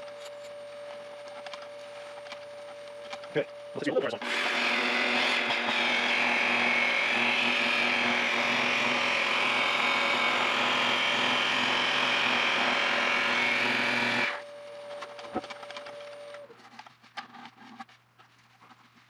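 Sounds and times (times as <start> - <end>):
electric polisher running: 4.2 - 14.4.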